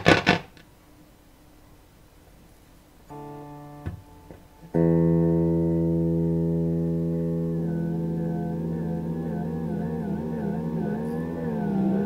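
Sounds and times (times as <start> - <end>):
faint amp hum: 0.0 - 12.0
electric guitar chord ringing: 3.1 - 12.0
electric guitar note picked: 3.1 - 12.0.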